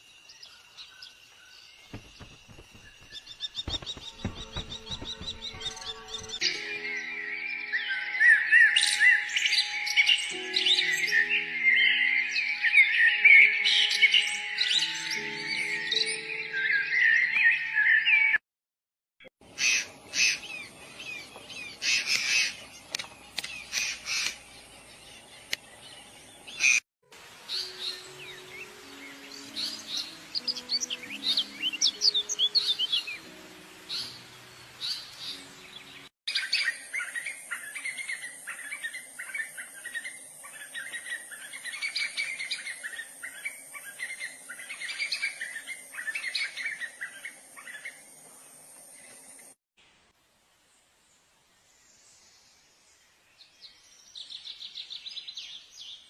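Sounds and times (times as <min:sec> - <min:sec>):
small birds chirping: 0:00.0 - 0:17.6, 0:19.4 - 0:26.8, 0:27.4 - 0:49.6
steady high hiss: 0:27.2 - 0:36.0.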